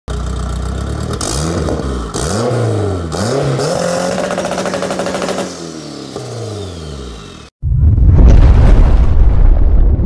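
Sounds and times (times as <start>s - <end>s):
car engine revving: 0.1s - 7.5s.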